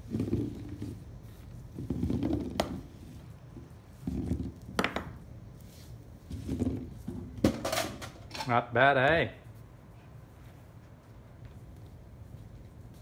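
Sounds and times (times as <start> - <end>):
fruits rolling and knocking on table: 0.0 - 8.4.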